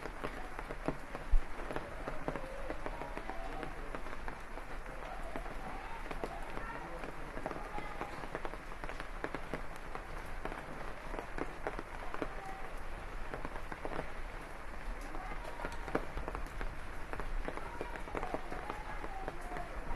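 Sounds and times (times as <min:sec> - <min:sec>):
close raindrops striking: 0:00.0 - 0:19.9
rain falling on leaves: 0:00.0 - 0:19.9.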